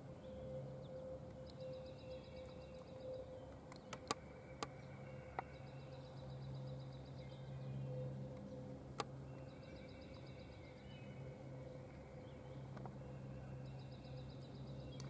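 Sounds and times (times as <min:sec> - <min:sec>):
low steady hum: 0:00.0 - 0:15.0
songbird ticking trill: 0:00.2 - 0:15.0
sharp clicks: 0:03.7 - 0:04.7.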